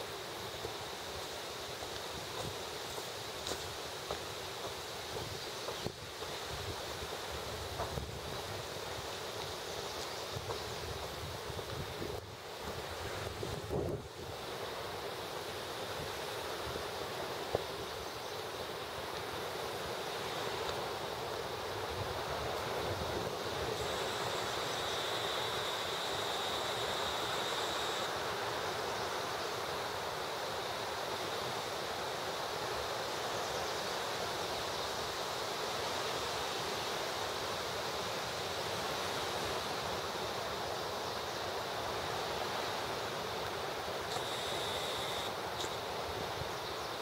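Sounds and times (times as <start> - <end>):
faint high whine: 22.7 - 30.0, 43.4 - 46.0.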